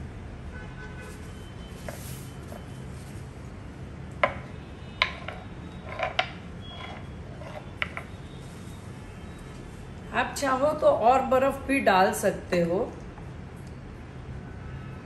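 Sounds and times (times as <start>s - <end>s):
glass clinking on wooden board: 5.0s - 8.1s.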